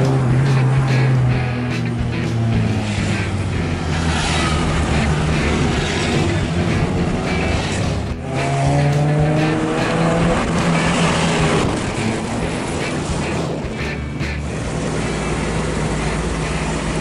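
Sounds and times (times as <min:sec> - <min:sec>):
car engine drone from inside: 0:14.4 - 0:17.0.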